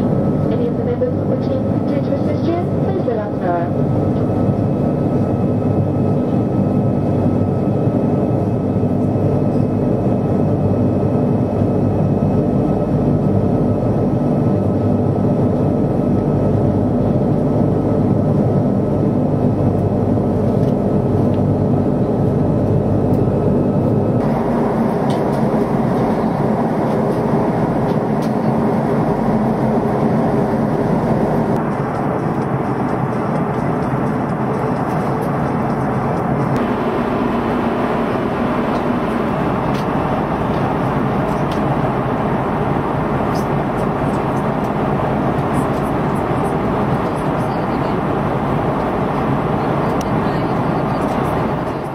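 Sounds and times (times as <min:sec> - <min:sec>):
jet engines droning: 0:00.0 - 0:51.9
steady hum tones: 0:00.0 - 0:51.9
rushing air: 0:23.5 - 0:45.4.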